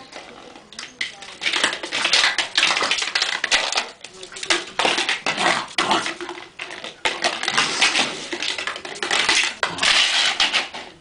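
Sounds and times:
flower pot scraping on concrete: 0.0 - 11.0.

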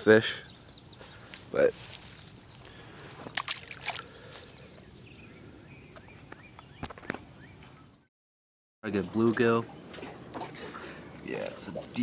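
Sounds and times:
shallow water splashing: 3.0 - 4.3.

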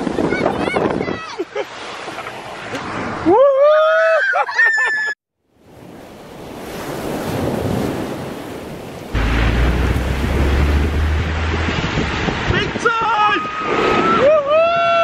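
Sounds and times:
wind buffeting microphone: 0.0 - 1.3, 9.1 - 15.0
tyres hissing on wet road: 9.1 - 12.6
heavy low rumble: 9.2 - 12.6.

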